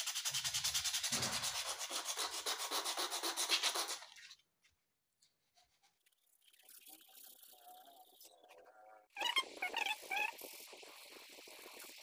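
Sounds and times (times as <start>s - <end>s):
sandpaper rasping on metal: 0.0s - 4.1s.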